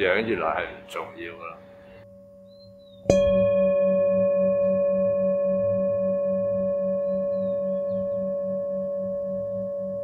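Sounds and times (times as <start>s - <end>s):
singing bowl ringing: 2.0s - 10.0s.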